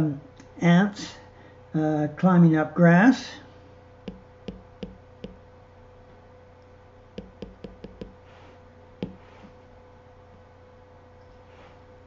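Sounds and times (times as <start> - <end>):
stylus tapping on glass screen: 4.1 - 5.4, 7.2 - 8.2, 9.0 - 9.2.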